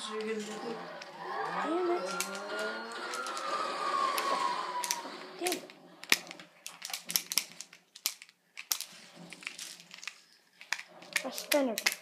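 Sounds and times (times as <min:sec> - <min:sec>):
high tone gliding down: 0:00.0 - 0:05.7.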